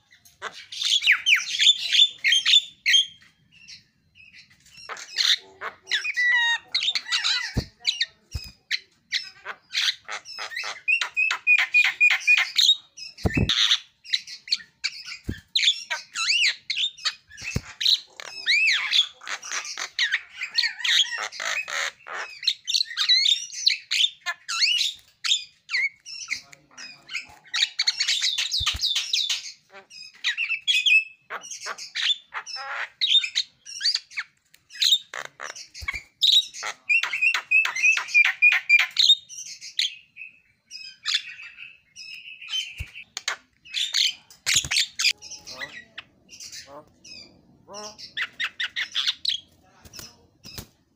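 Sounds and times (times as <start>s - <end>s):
myna singing whistles and squawks: 13.2s - 13.8s.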